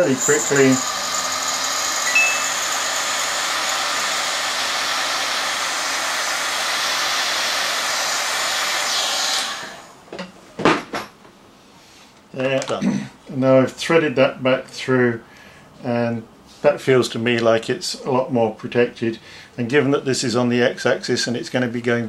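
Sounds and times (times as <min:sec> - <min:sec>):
hot-air gun blowing: 0:00.0 - 0:10.0
short high beep: 0:02.1 - 0:02.7.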